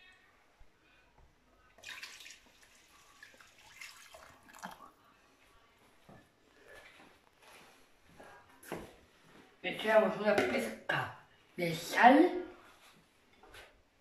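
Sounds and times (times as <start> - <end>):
water pouring into a pot: 1.8 - 5.0.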